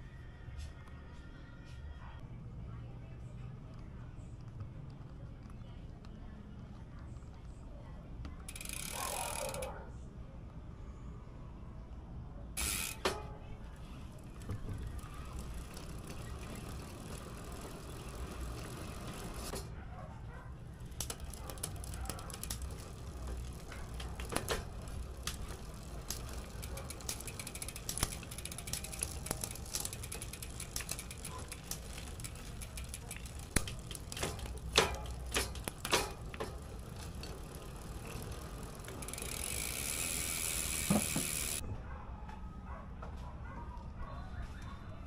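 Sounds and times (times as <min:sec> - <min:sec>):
bike drivetrain clicking: 0:08.2 - 0:09.8, 0:12.6 - 0:41.6.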